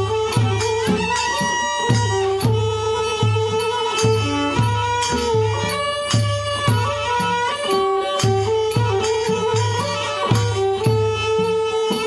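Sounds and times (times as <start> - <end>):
folk ensemble melody of held notes: 0.0 - 12.0.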